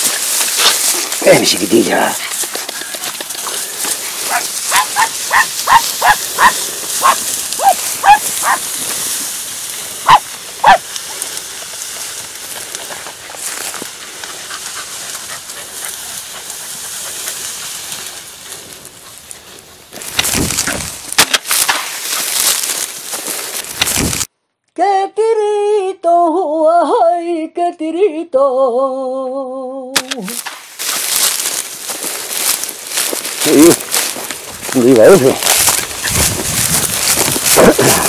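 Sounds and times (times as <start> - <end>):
steady high hiss: 0.0 - 20.2
rustling and crackling: 0.0 - 24.3, 30.0 - 38.0
dogs yelping: 4.2 - 8.7, 10.0 - 11.2.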